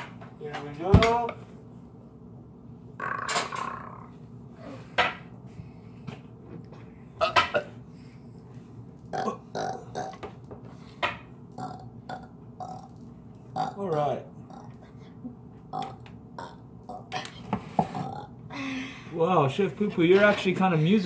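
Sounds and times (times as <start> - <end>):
man burping: 9.1 - 10.2, 11.6 - 12.9, 13.6 - 14.8, 15.7 - 18.4.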